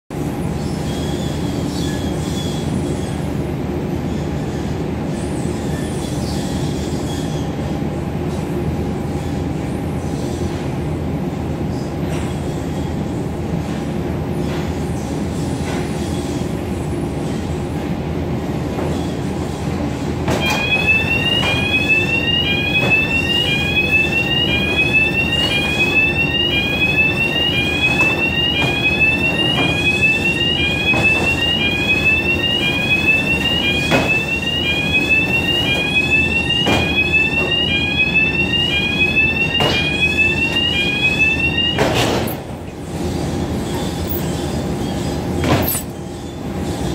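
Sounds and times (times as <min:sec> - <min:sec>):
conveyor machinery rumble and rattle: 0:00.1 - 0:37.6, 0:41.8 - 0:46.9
electronic warning alarm: 0:20.3 - 0:42.5.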